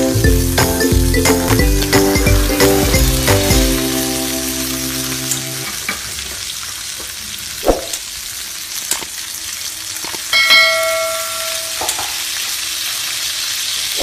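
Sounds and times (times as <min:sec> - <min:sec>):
meat sizzling in a skillet: 0:01.7 - 0:14.0
bell-like chime: 0:10.3 - 0:11.8.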